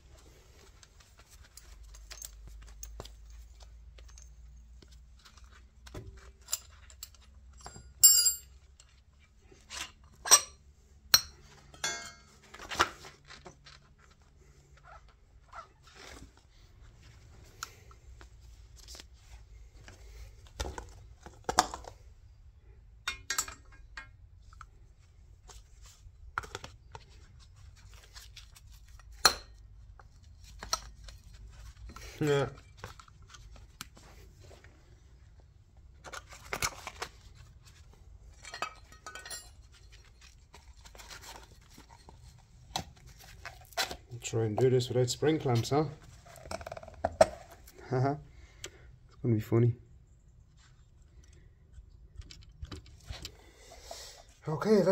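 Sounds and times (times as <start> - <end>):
metal clinks of spanner and parts: 1.5 - 4.7, 6.4 - 9.0, 9.7 - 12.4, 23.0 - 24.2, 38.3 - 40.2.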